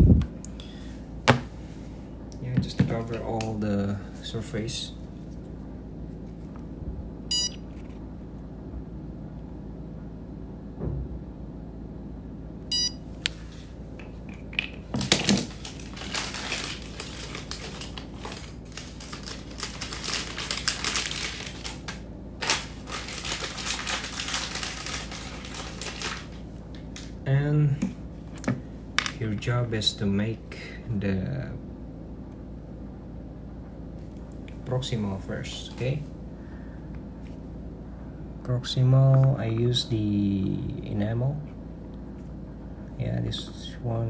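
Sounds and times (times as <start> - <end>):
low hum: 0.0 - 44.0
short electronic beeps: 7.3 - 7.6, 12.7 - 13.0
crinkling and rustling: 14.0 - 27.2.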